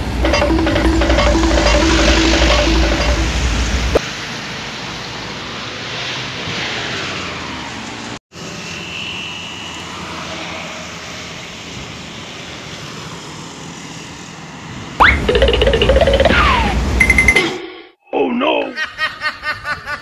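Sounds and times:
cars passing: 0:00.0 - 0:15.0.

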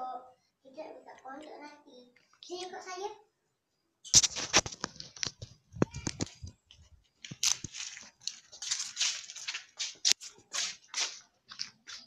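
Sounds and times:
footsteps in sandals on concrete: 0:05.8 - 0:12.0.

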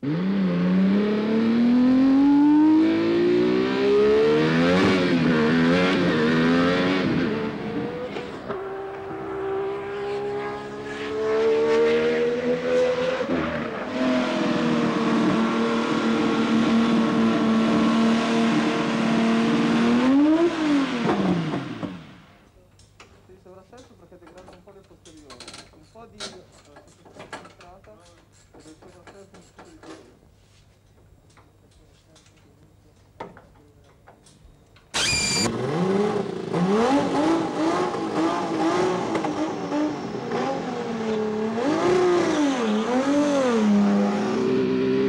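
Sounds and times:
racing car engine revving: 0:00.0 - 0:22.3, 0:35.0 - 0:45.0.

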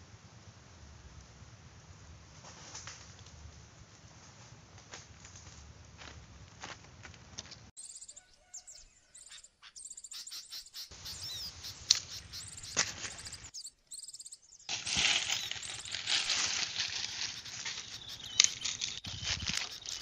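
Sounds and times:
sharp snaps: 0:11.6 - 0:13.5, 0:17.0 - 0:20.0
dry leaves rustling and crackling: 0:14.7 - 0:20.0.

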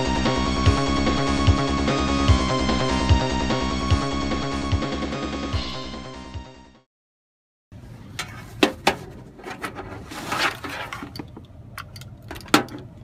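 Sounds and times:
music: 0:00.0 - 0:06.9.

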